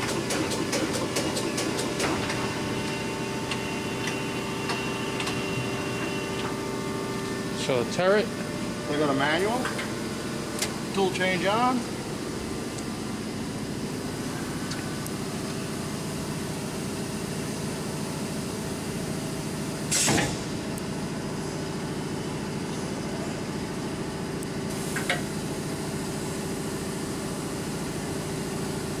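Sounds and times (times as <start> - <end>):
machine humming: 0.0 - 19.7.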